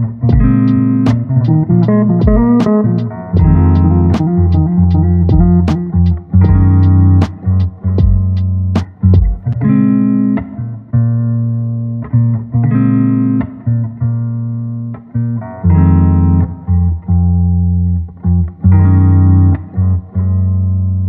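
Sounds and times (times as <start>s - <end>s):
low bass line: 0.0s - 9.6s
plucked string notes: 0.0s - 10.8s.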